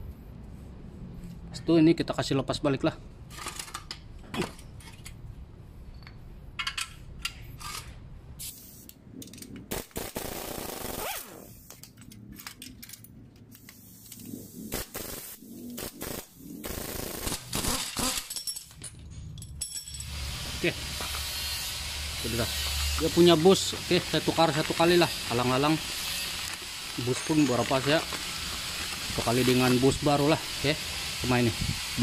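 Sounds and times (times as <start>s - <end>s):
metal tools clinking: 11.8s - 14.2s, 17.8s - 21.3s, 22.1s - 30.4s
impact wrench whirring: 14.7s - 18.3s, 20.0s - 32.0s.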